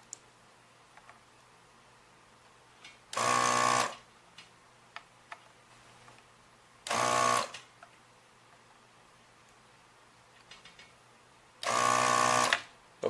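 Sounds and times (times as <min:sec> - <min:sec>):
desoldering pump buzzing: 0:03.1 - 0:04.0, 0:06.8 - 0:07.6, 0:11.6 - 0:12.6.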